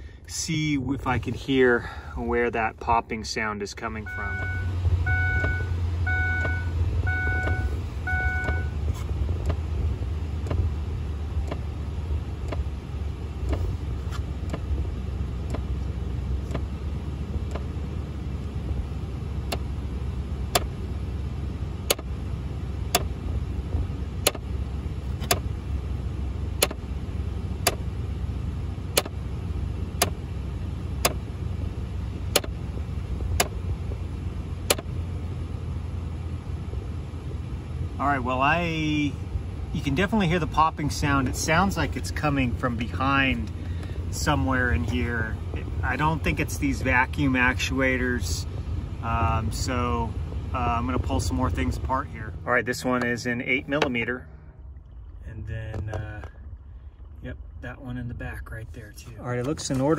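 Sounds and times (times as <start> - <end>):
steady low hum: 0.0 - 59.9
popping clicks behind dashboard: 4.1 - 9.7, 10.3 - 10.7, 11.4 - 11.8, 12.4 - 17.8, 19.4 - 19.8, 20.5 - 20.8, 21.8 - 22.2, 22.8 - 23.2, 24.2 - 24.5, 25.1 - 25.5, 26.5 - 26.9, 27.6 - 27.9, 28.9 - 29.2, 29.9 - 30.2, 31.0 - 34.0, 34.6 - 35.0, 52.8 - 54.0, 54.8 - 56.3.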